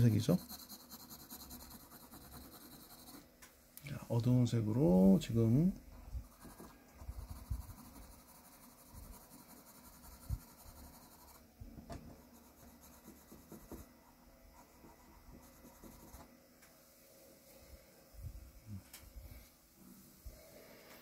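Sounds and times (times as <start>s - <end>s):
pencil scratching on paper: 0.0s - 3.3s, 6.1s - 11.5s, 12.2s - 13.9s, 14.6s - 16.3s.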